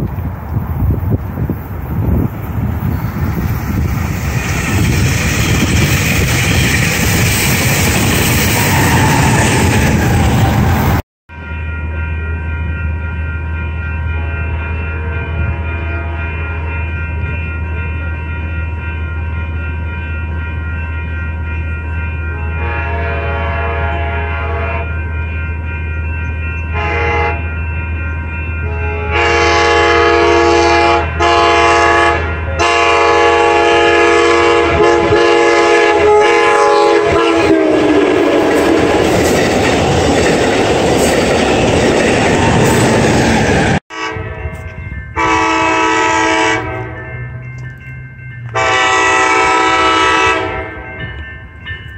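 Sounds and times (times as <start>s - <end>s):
rush of passing train: 0.0s - 51.9s
train air horn blasts: 8.4s - 10.8s, 14.2s - 17.4s, 22.2s - 25.1s, 26.7s - 27.6s, 28.6s - 38.7s, 43.9s - 47.0s, 48.5s - 50.9s.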